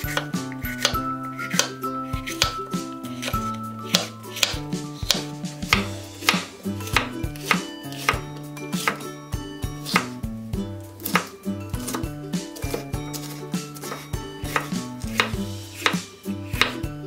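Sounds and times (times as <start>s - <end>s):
knife chopping on wooden board: 0.0s - 9.0s, 9.8s - 10.2s, 11.0s - 17.0s
background music: 0.0s - 17.0s.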